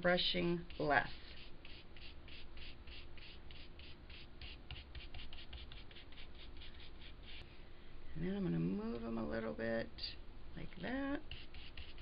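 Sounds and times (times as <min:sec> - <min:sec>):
brush scrubbing paint on cardstock: 0:00.7 - 0:07.4, 0:11.2 - 0:12.0.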